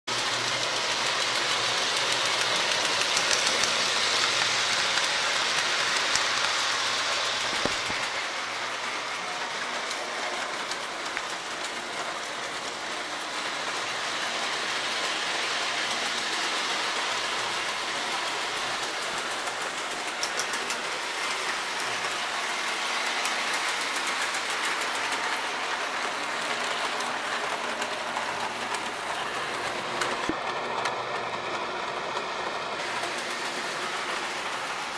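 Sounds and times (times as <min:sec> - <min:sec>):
toy train rolling rumble: 0:00.1 - 0:34.9
clicking over rail joints: 0:16.3 - 0:31.0.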